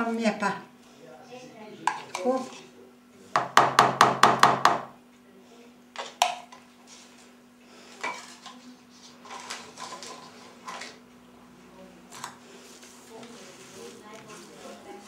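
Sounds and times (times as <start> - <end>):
spoon and dishes clinking: 8.0 - 8.6.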